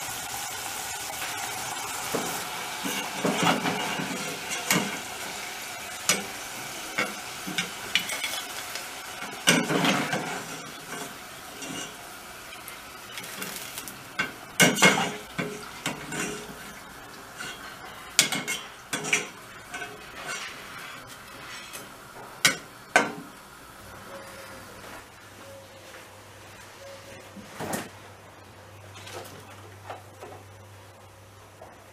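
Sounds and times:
fries sizzling in hot oil: 0.0 - 25.2.

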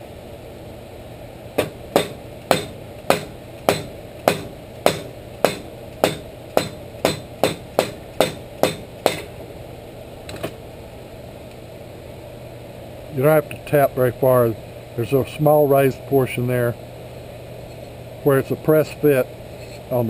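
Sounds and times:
rubber mallet tapping metal: 1.6 - 9.3.

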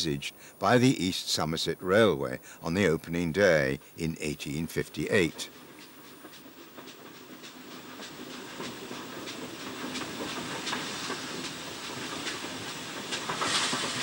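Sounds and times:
steam hissing: 5.1 - 14.0.

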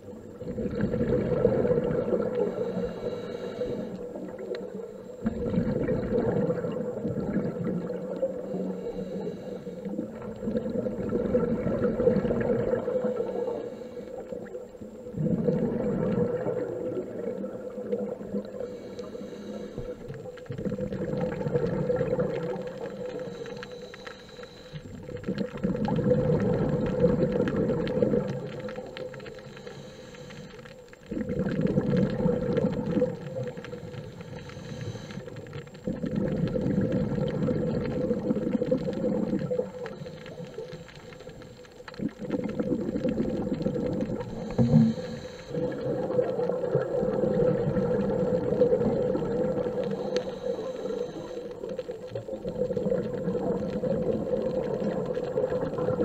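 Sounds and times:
exhaled bubbles rushing: 0.0 - 9.1, 9.8 - 18.9, 19.8 - 23.4, 24.8 - 29.6, 31.1 - 56.0
regulator inhalations: 2.1 - 5.5, 8.2 - 10.7, 12.2 - 14.6, 17.3 - 20.4, 22.2 - 25.2, 29.1 - 30.9, 33.2 - 35.6, 44.2 - 45.9, 49.6 - 52.0.

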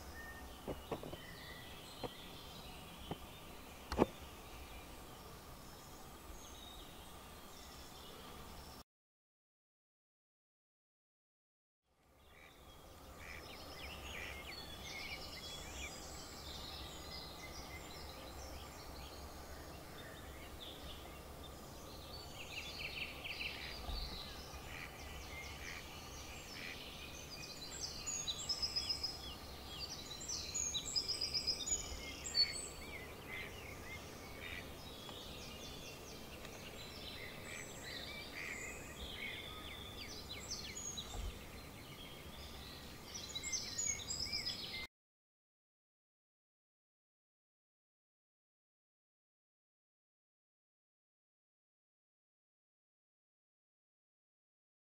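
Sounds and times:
songbirds singing: 0.0 - 8.8, 12.0 - 44.9.

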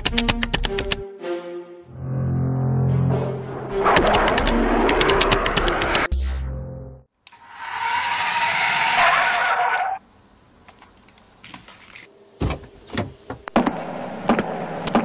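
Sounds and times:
music: 0.0 - 7.1.

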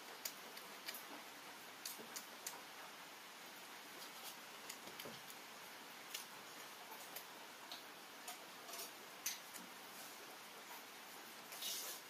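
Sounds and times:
person eating by hand: 0.0 - 2.8, 3.9 - 10.2
low hiss: 0.0 - 12.0.

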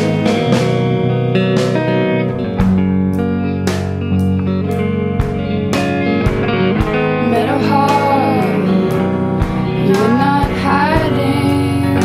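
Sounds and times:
guitar: 0.0 - 12.0
woman singing: 7.1 - 12.0.

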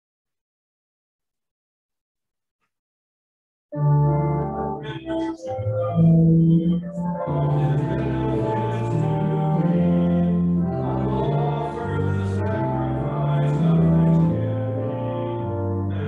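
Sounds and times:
organ playing a slow hymn: 3.8 - 16.0.

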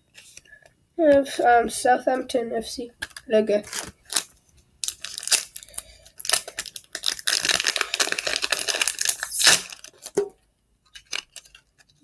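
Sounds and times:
foil wrapper crinkling: 3.0 - 10.3, 10.9 - 12.0.

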